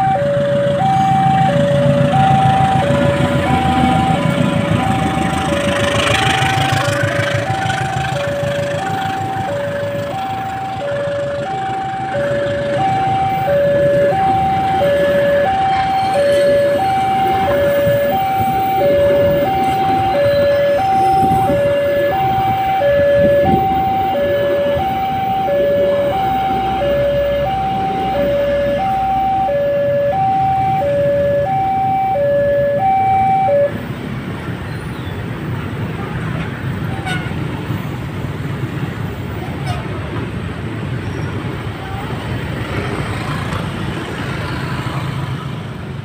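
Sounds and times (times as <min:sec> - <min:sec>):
train coaches rumbling on rails: 0:00.0 - 0:29.4, 0:33.8 - 0:46.0
two-tone warning alarm: 0:00.0 - 0:33.8.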